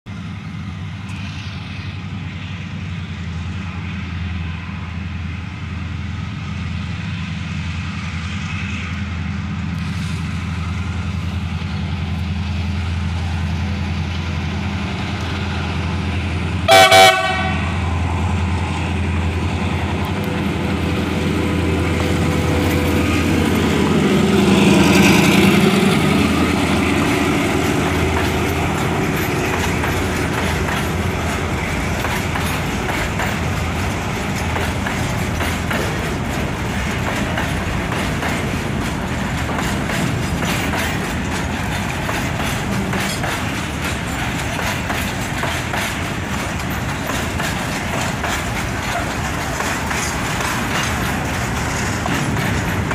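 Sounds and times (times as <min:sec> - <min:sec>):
diesel locomotive engine drone: 0:00.0 - 0:52.9
train horn toot: 0:16.7 - 0:17.8
freight wagons rolling: 0:24.9 - 0:52.9.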